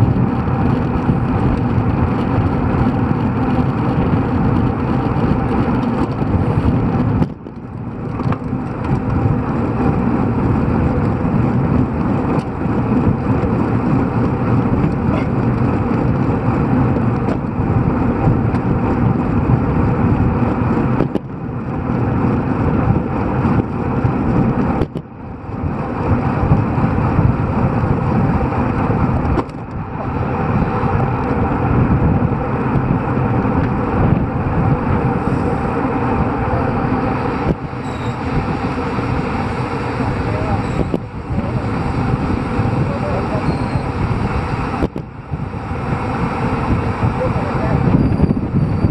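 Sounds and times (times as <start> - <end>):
tyre and road noise: 0.0 - 48.9
wind rushing over microphone: 0.0 - 48.9.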